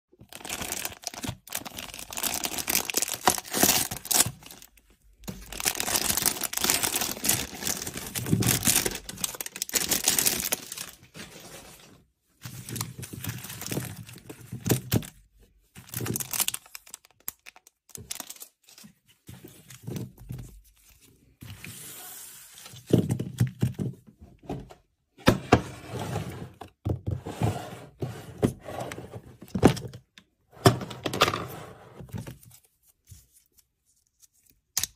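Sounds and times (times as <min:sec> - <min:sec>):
plastic packaging crinkling and tearing: 0:00.2 - 0:11.9, 0:12.5 - 0:15.1, 0:15.8 - 0:18.9.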